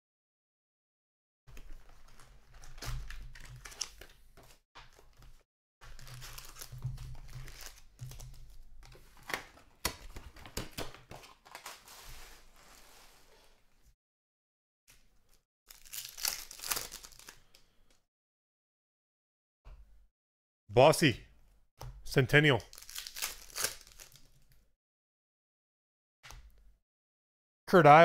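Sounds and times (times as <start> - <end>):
foil packs crinkling: 4.9 - 9.6, 15.7 - 17.6, 22.7 - 24.5
tearing: 15.7 - 17.4, 22.7 - 24.3.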